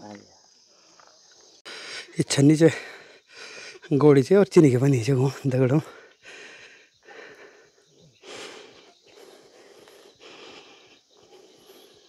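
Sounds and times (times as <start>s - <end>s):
person breathing heavily: 1.6s - 3.9s, 5.8s - 12.0s.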